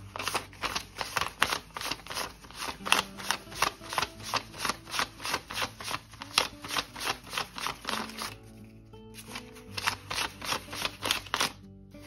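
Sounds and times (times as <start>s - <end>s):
banknotes flicked by hand: 0.0s - 8.5s, 9.2s - 11.6s.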